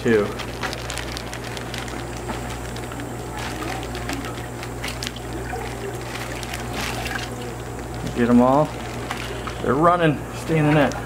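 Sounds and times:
plastic bag crackling: 0:00.0 - 0:11.0
steady low hum: 0:00.0 - 0:11.0
water pouring into a bucket: 0:03.4 - 0:09.3.

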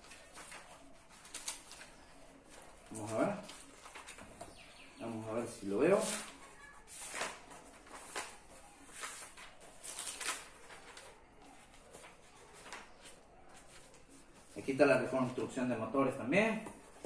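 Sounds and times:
book pages turning: 0:00.0 - 0:04.6, 0:05.9 - 0:14.5
paper rustling: 0:00.0 - 0:04.6, 0:05.3 - 0:15.6.

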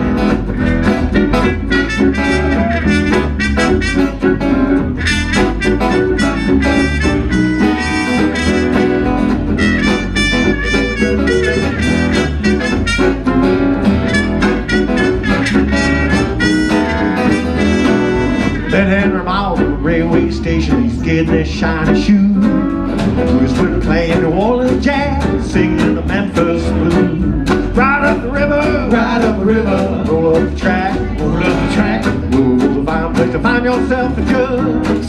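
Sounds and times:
jug band playing: 0:00.0 - 0:35.0
trumpet lead: 0:01.3 - 0:18.8.

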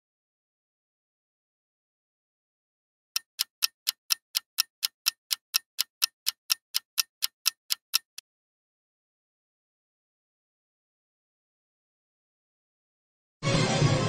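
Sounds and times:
clock ticking: 0:03.2 - 0:08.2.

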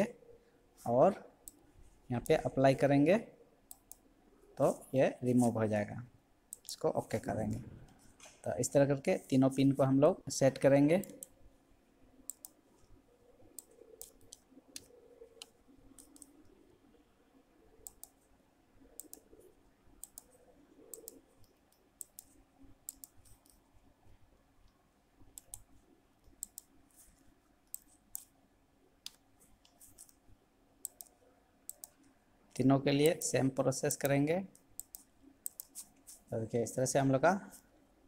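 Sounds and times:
quiet room hum: 0:00.0 - 0:38.0
computer mouse clicks: 0:01.4 - 0:01.6, 0:03.7 - 0:04.1, 0:06.5 - 0:08.5, 0:11.0 - 0:11.4, 0:12.2 - 0:16.6, 0:17.8 - 0:18.3, 0:18.9 - 0:23.7, 0:24.6 - 0:26.8, 0:27.6 - 0:28.4, 0:29.0 - 0:30.2, 0:30.8 - 0:33.4, 0:34.0 - 0:36.3.

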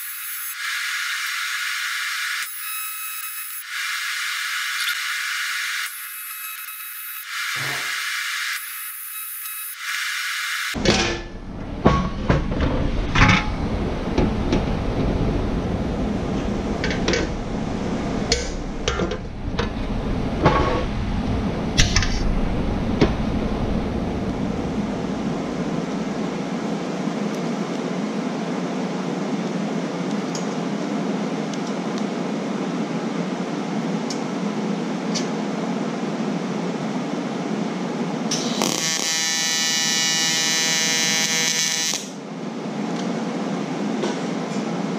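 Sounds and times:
welding arc buzzing hum: 0:00.0 - 0:10.8, 0:38.3 - 0:42.3.

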